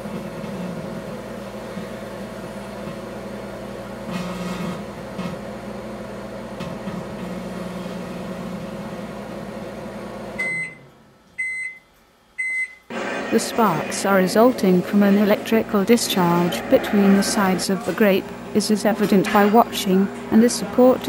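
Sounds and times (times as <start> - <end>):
microwave oven humming: 0.0 - 21.0
microwave beeps: 10.4 - 13.4.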